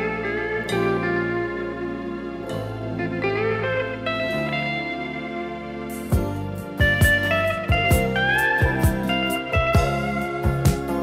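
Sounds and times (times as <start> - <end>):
guitar melody with sliding notes: 0.0 - 11.0
steady beat: 5.9 - 11.0.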